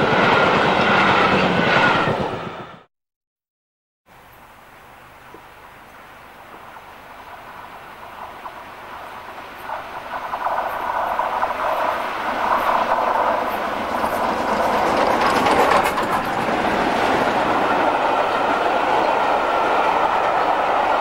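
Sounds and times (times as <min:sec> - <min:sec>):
steam locomotive running past: 0:06.6 - 0:21.0
coach wheels clattering: 0:08.0 - 0:20.8.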